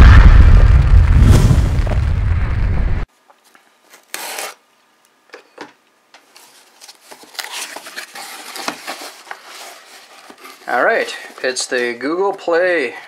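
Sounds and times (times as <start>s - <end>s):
cardboard scraping and rubbing: 6.3s - 12.3s.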